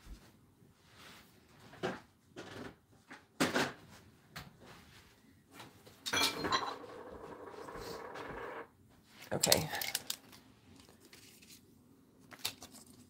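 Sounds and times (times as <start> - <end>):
rustling and sliding: 0.2 - 1.8.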